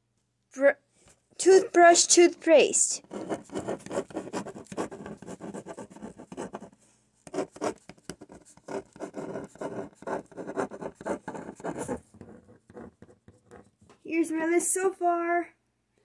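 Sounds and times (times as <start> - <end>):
pen scratching on paper: 1.4 - 13.8.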